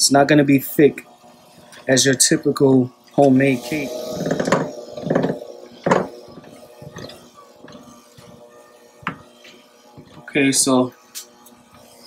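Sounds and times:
electric hand mixer humming: 3.2s - 12.0s.

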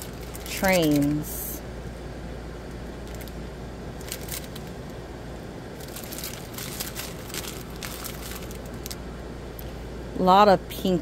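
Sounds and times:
plastic packaging crinkling: 0.0s - 1.4s, 3.0s - 3.4s, 4.0s - 5.0s, 5.8s - 9.0s.

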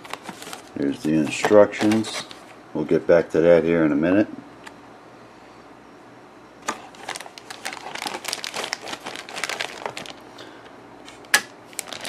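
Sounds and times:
plastic bag crinkling: 0.0s - 2.4s, 6.6s - 12.0s.

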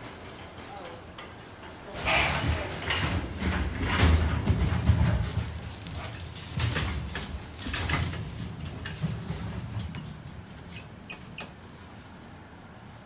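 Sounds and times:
shopping cart rattling on tile: 1.8s - 11.4s.

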